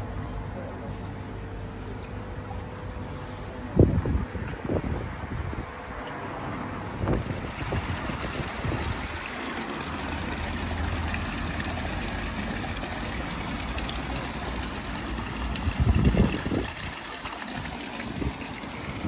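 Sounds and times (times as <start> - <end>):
water splashing into pond: 7.0 - 19.0.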